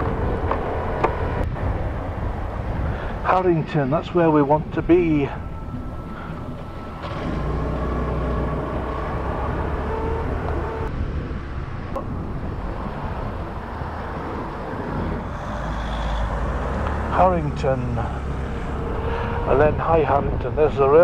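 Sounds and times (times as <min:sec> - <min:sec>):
scooter engine and road rumble: 0:00.0 - 0:21.0
wind noise: 0:00.0 - 0:21.0
faint engine tone: 0:05.1 - 0:10.9, 0:12.0 - 0:19.8.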